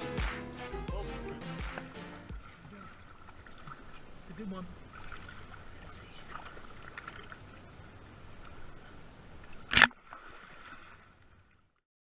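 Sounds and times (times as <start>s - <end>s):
water sloshing: 1.7s - 11.8s
fish splashing: 9.4s - 11.7s.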